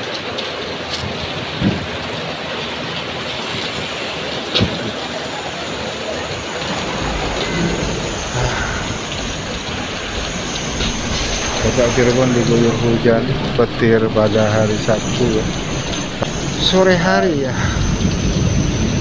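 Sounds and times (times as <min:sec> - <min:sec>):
heavy rain on pavement: 0:00.0 - 0:19.0
low rumble: 0:06.3 - 0:19.0.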